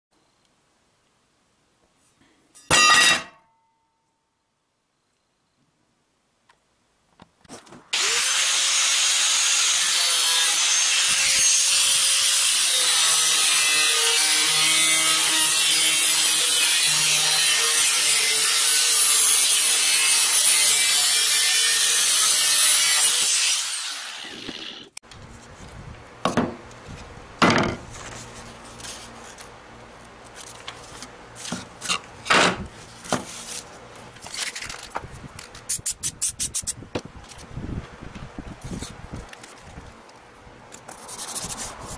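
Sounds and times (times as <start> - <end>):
angle grinder cutting metal: 8.0 - 25.0
rubbing and scraping: 40.8 - 41.9.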